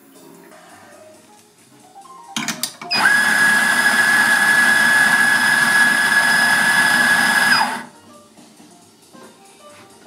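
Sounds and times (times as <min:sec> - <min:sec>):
coffee grinder grinding: 0:02.9 - 0:07.9.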